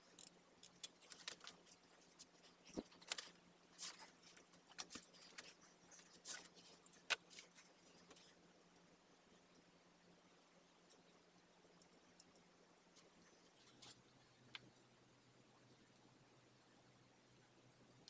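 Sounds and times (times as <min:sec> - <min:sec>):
faint steady hum: 0:00.0 - 0:18.0
hands handling wires and connectors: 0:00.2 - 0:08.4.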